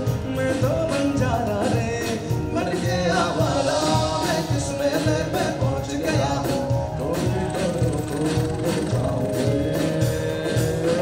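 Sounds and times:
group of vocalists singing: 0.0s - 11.0s
man singing lead: 0.0s - 11.0s
beatboxed beat: 7.2s - 11.0s.

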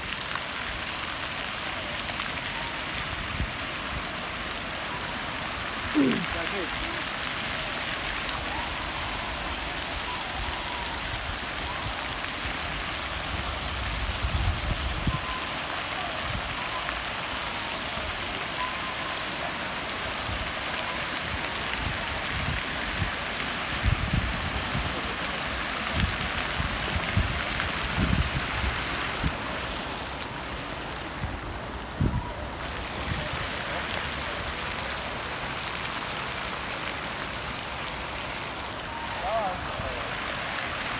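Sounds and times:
fountain water splashing: 0.0s - 40.9s
wind rumble on microphone: 13.0s - 15.3s, 23.8s - 25.0s, 25.8s - 29.5s.

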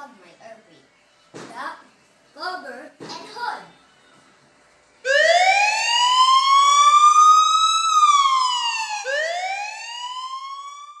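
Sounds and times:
siren wailing: 5.0s - 11.0s.

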